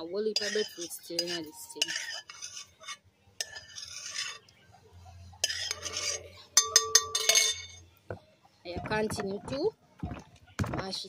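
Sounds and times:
metal utensil scraping cookware: 0:00.0 - 0:04.6, 0:05.3 - 0:07.9.

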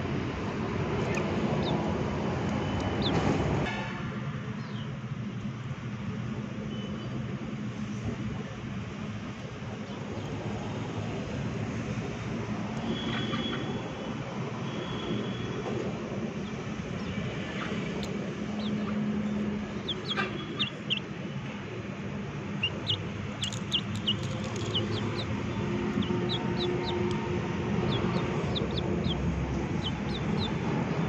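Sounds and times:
steady background rumble: 0:15.7 - 0:31.0
high falling bird chirps: 0:16.4 - 0:21.1, 0:22.5 - 0:30.7
chickens pecking from steel bowl: 0:22.6 - 0:27.3.

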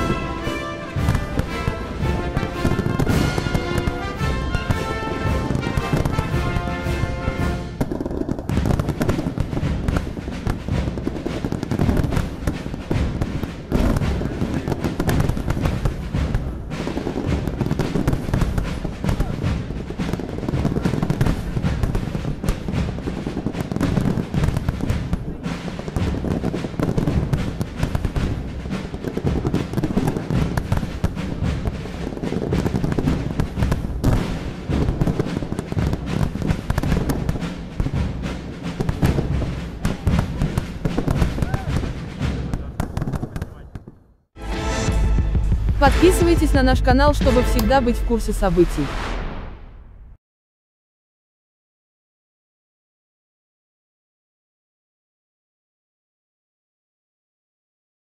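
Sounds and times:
deep fireworks booms: 0:00.0 - 0:50.2
fireworks bangs and crackling: 0:00.0 - 0:50.2.

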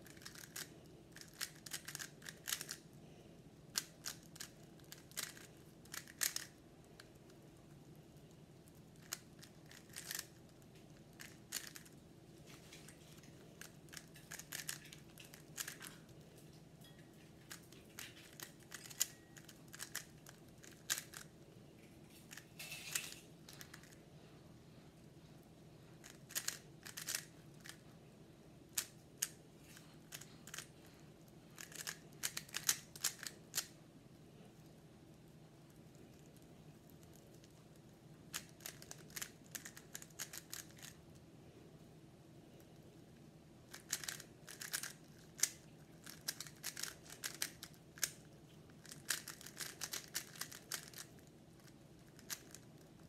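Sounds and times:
puzzle cube layers clicking: 0:00.1 - 0:02.8, 0:03.8 - 0:06.6, 0:09.0 - 0:10.3, 0:13.6 - 0:15.8, 0:18.2 - 0:21.3, 0:26.0 - 0:27.8, 0:31.6 - 0:33.7, 0:43.7 - 0:48.2, 0:48.8 - 0:51.1.

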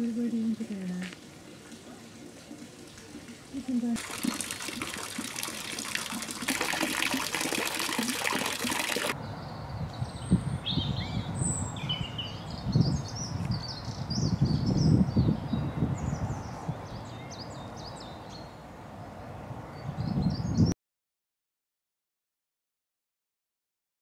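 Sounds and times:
fountain water splashing: 0:00.0 - 0:09.2.

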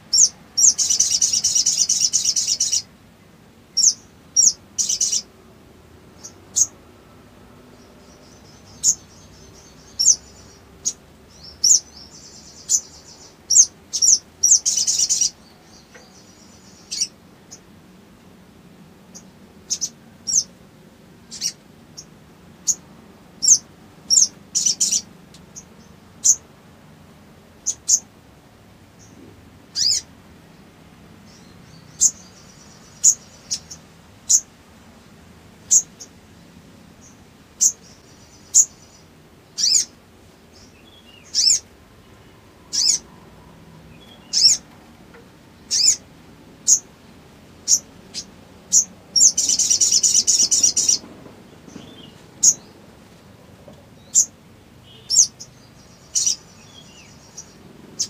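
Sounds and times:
sunbird high chirps: 0:00.0 - 0:02.9, 0:03.7 - 0:05.3, 0:06.2 - 0:06.9, 0:07.7 - 0:17.7, 0:19.1 - 0:20.6, 0:21.2 - 0:22.8, 0:23.4 - 0:26.5, 0:27.6 - 0:28.1, 0:29.0 - 0:30.1, 0:31.2 - 0:34.6, 0:35.6 - 0:36.2, 0:37.0 - 0:44.8, 0:45.6 - 0:46.9, 0:47.6 - 0:51.0, 0:51.6 - 0:52.8, 0:54.0 - 0:58.0
bird rapid trill: 0:00.1 - 0:02.9, 0:29.8 - 0:30.0, 0:39.6 - 0:39.9, 0:41.0 - 0:41.7, 0:42.7 - 0:43.1, 0:44.0 - 0:44.6, 0:45.7 - 0:46.0, 0:47.6 - 0:51.0, 0:54.1 - 0:58.0.

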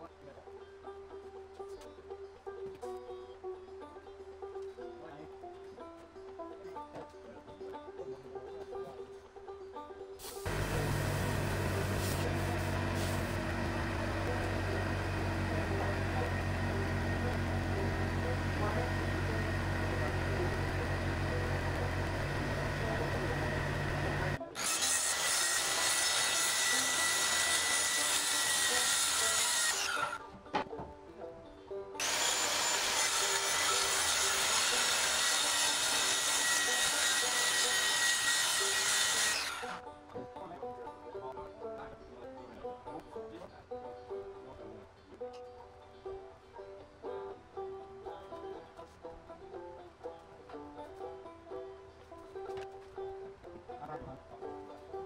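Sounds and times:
circular saw cutting board: 0:10.4 - 0:30.2, 0:32.0 - 0:39.8
machine humming: 0:10.5 - 0:24.4.

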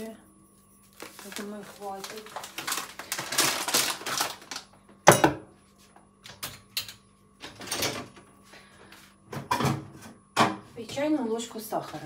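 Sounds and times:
kitchen items rustling: 0:00.0 - 0:12.0.

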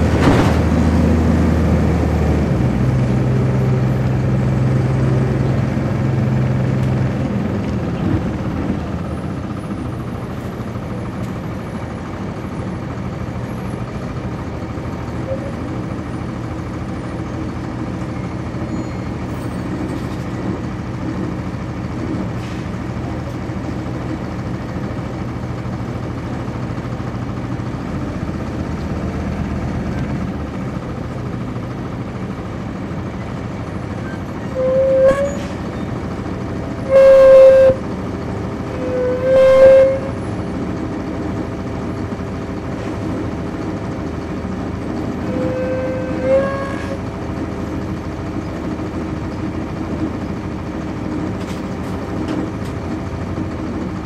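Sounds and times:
bus diesel engine droning: 0:00.0 - 0:54.0
bus horn honks: 0:34.0 - 0:35.9, 0:36.8 - 0:37.9, 0:38.7 - 0:40.4, 0:45.1 - 0:47.1.

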